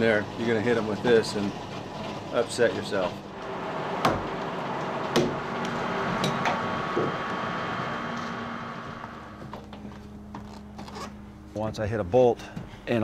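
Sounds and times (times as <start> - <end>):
sawmill machinery running: 0.0 - 11.0
faint steady whine: 3.0 - 13.0.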